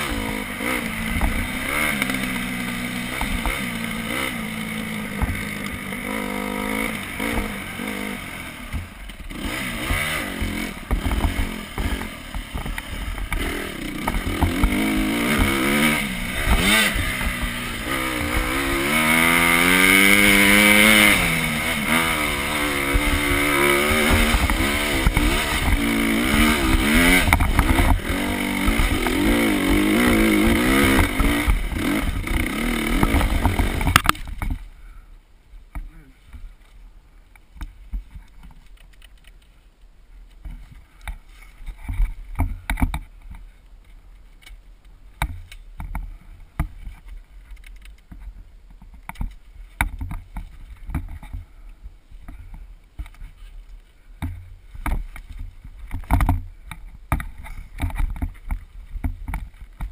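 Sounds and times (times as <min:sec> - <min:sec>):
dirt bike engine revving: 0:00.0 - 0:34.2.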